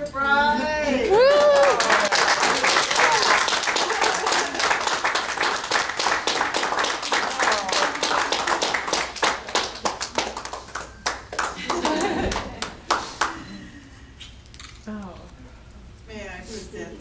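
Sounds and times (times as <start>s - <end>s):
voices cheering: 1.0s - 4.9s
people applauding: 1.0s - 13.6s.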